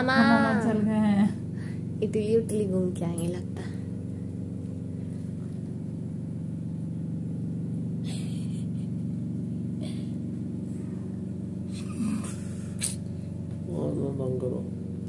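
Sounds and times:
low mechanical hum: 0.0 - 15.0.

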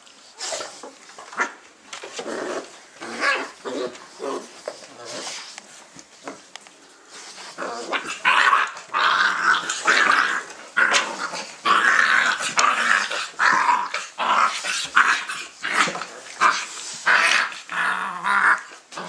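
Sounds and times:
puppies squealing growls: 2.2 - 5.4, 7.5 - 19.0.

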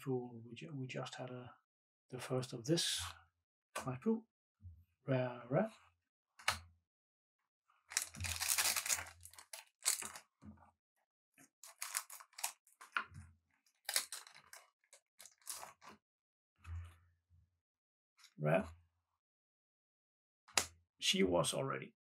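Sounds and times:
card wrapping crinkling and tearing: 7.9 - 10.2, 11.6 - 12.8, 13.8 - 15.9.

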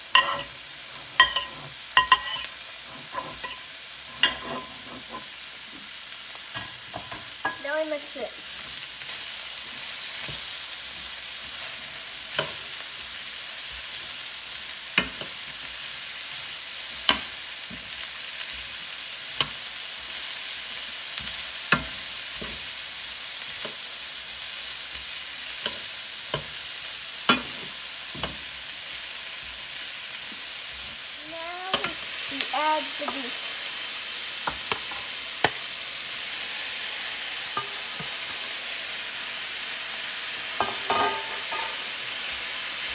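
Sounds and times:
vegetables sizzling in oil: 0.0 - 42.9
metal tongs clacking against pan: 0.1 - 0.5, 1.2 - 5.3, 31.7 - 32.0, 40.6 - 41.9.

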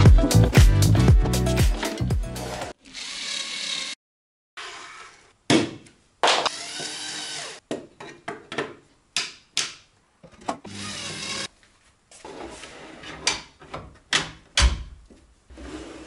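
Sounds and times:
drill driver motor whining: 2.8 - 4.0, 6.4 - 7.6.

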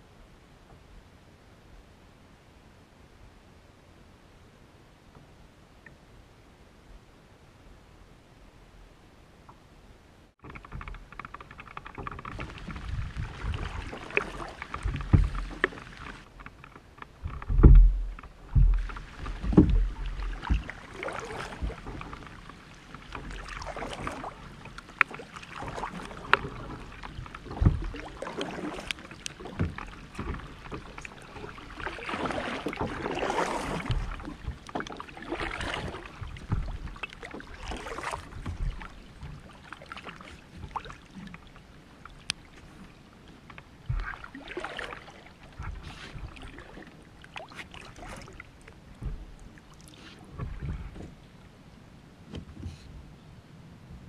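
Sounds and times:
low thumps: 10.4 - 22.4, 26.4 - 28.2, 48.9 - 49.5
paddle splashing in water: 10.4 - 51.5.

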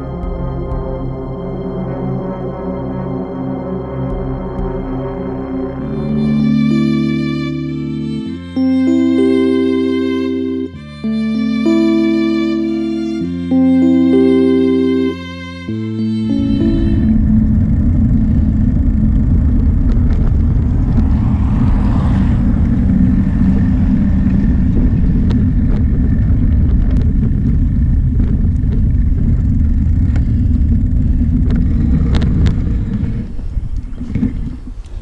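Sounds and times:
sharp clicks from bumps: 16.3 - 35.0
wind buffeting microphone: 16.3 - 35.0
bicycle rolling over asphalt: 16.8 - 35.0.

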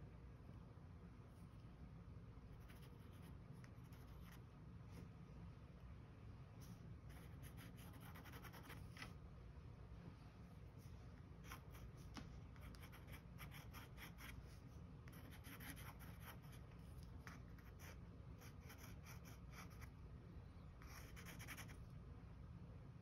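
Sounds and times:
felt-tip pen scribbling on paper: 7.1 - 8.8, 15.1 - 19.9, 20.8 - 21.8.

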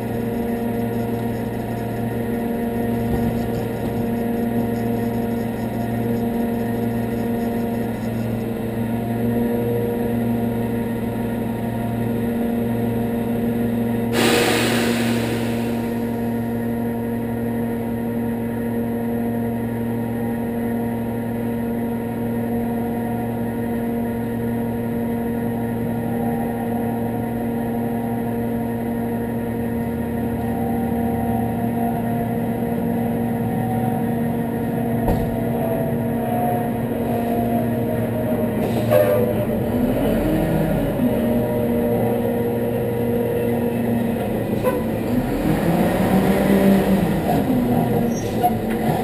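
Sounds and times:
truck engine idling: 0.0 - 9.2.

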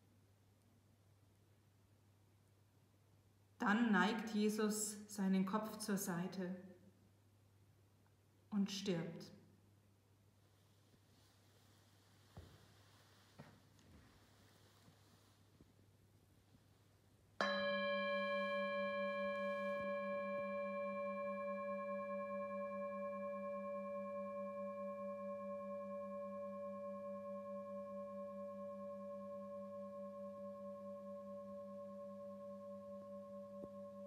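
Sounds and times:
singing bowl ringing: 17.4 - 34.0.

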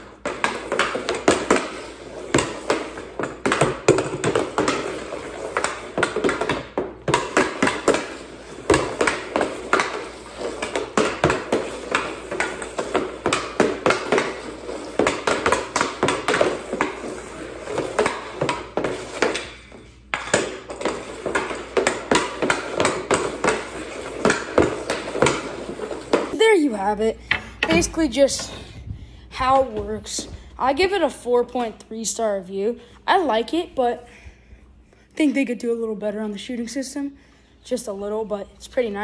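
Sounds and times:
hockey stick and puck clacking: 0.0 - 26.4, 27.2 - 28.5.

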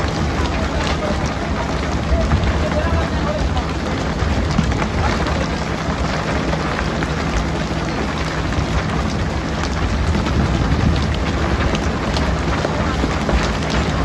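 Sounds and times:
boat engine droning: 0.0 - 14.0
rushing water: 0.0 - 14.0
wind noise with crackles: 0.0 - 14.0.

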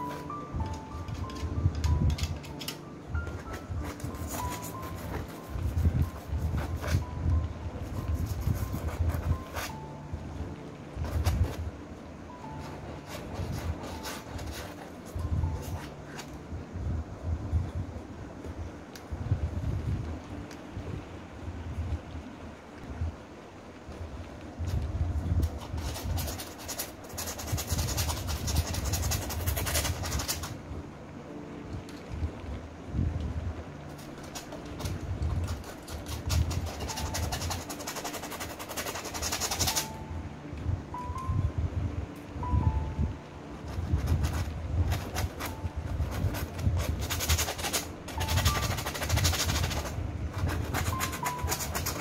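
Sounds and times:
steady low rumble: 0.0 - 26.3, 28.0 - 37.5, 39.9 - 51.8
palette knife scraping paint on canvas: 25.6 - 30.5, 34.2 - 39.9, 46.1 - 52.0.

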